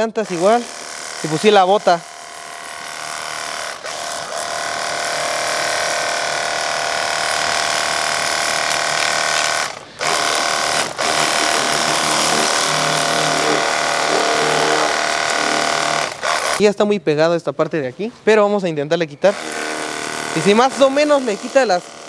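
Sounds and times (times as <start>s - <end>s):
pressure washer pump whine: 0.0s - 16.6s, 19.3s - 22.0s
water jet spraying: 7.2s - 16.6s.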